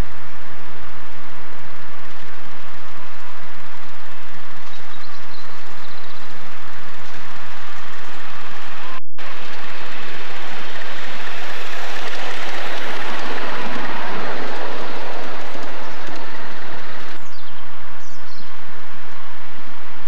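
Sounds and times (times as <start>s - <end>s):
miniature steam train passing: 9.2s - 19.1s.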